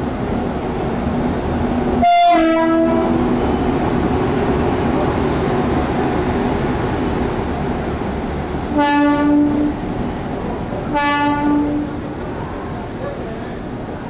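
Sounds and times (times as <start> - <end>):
train rolling past: 0.0 - 14.0
two-tone train horn: 2.0 - 3.2, 8.7 - 9.8, 10.9 - 12.0.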